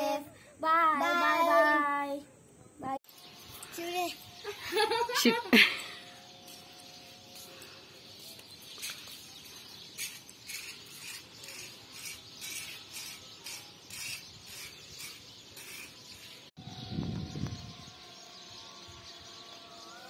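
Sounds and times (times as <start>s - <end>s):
insects chirping: 0.0s - 13.2s.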